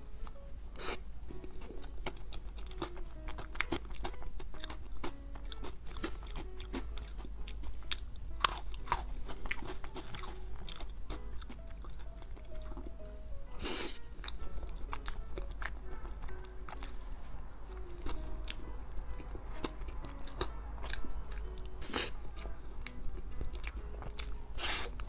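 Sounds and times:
faint background music: 0.0 - 25.0
person chewing with wet clicks: 1.4 - 13.2, 14.2 - 17.0, 17.7 - 25.0.

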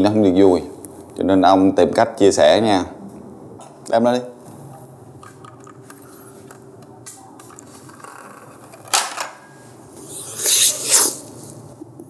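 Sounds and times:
sharp breath through nose: 10.0 - 11.3.

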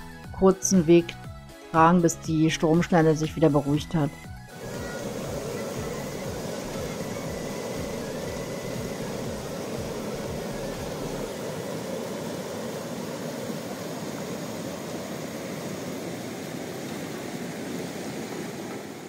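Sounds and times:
water rushing over rocks: 4.5 - 19.0.

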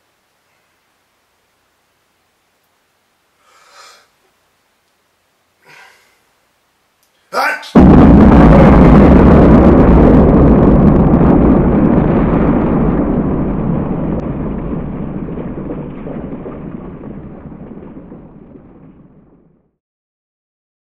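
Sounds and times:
deep explosion: 7.7 - 19.8.

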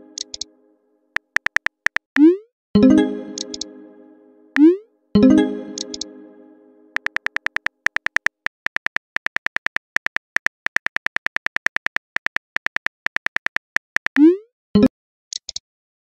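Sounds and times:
smartphone keyboard clicks: 1.2 - 2.1, 7.0 - 14.2.

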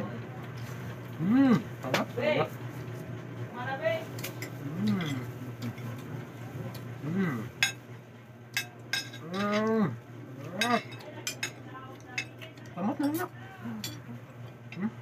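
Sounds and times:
person humming: 4.6 - 5.2, 7.0 - 7.5
cutlery clicking on plates: 10.5 - 11.6.

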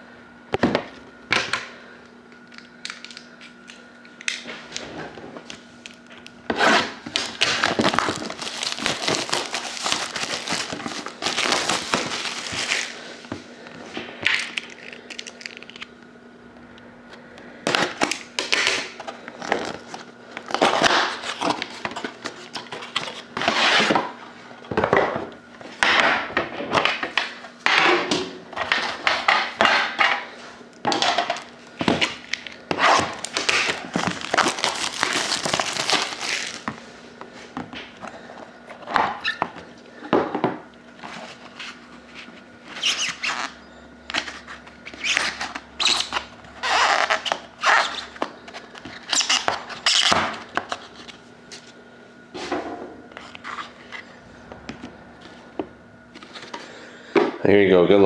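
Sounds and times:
plastic wrap crinkling: 5.4 - 13.2, 14.2 - 15.9, 17.7 - 23.5, 30.9 - 36.9, 41.0 - 51.7
cardboard rustling and rubbing: 6.5 - 13.0.

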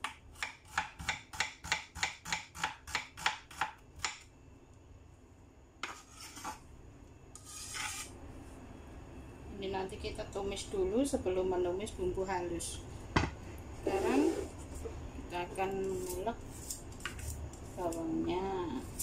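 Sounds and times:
blade scraping across board: 5.8 - 6.6, 7.4 - 8.1, 13.9 - 14.5.

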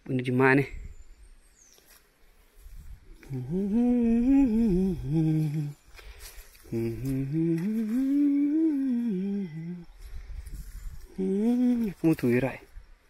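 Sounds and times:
man humming: 3.1 - 5.8, 6.6 - 10.0, 11.0 - 12.3.

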